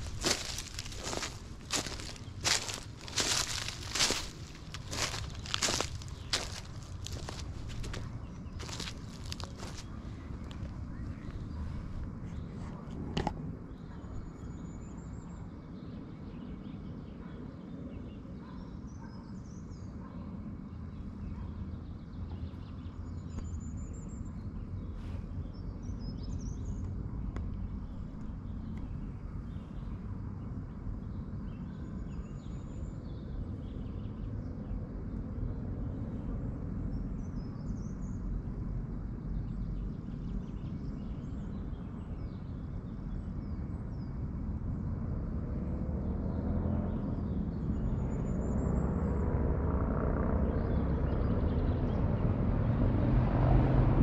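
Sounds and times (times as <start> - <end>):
steady low rumble: 0.0 - 14.4.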